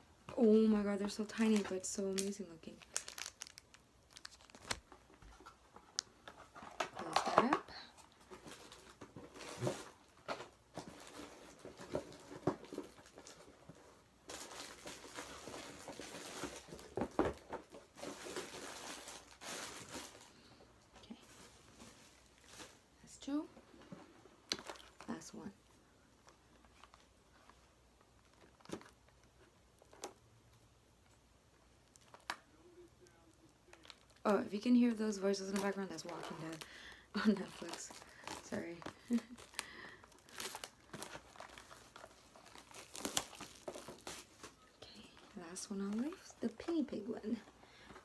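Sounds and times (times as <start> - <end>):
snack packaging crinkling: 1.3 - 6.1, 24.5 - 25.2, 31.8 - 45.1.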